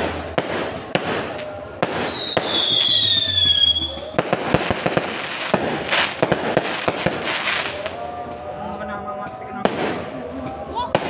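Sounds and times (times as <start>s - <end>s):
firework bang: 0.0s - 8.2s, 9.6s - 11.0s
firework whistle: 0.0s - 8.4s.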